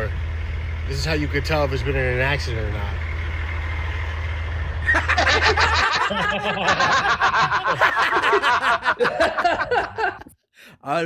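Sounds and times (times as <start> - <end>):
men laughing hard: 4.8 - 10.3.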